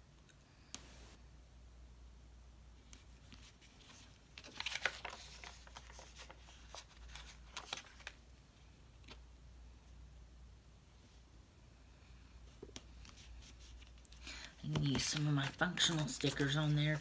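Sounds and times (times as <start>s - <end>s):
paper stickers rustling: 3.0s - 8.3s, 13.0s - 17.0s.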